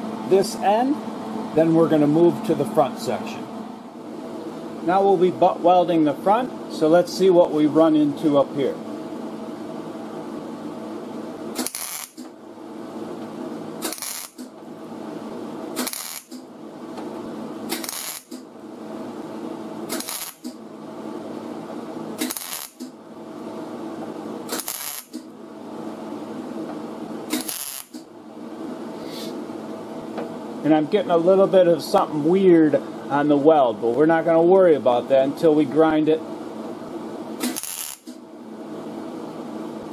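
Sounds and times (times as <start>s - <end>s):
welder stitch welding: 11.5s - 12.3s, 13.8s - 14.6s, 15.7s - 16.5s, 17.7s - 18.5s, 19.8s - 20.6s, 22.2s - 23.0s, 24.4s - 25.3s, 27.3s - 28.1s, 37.4s - 38.2s.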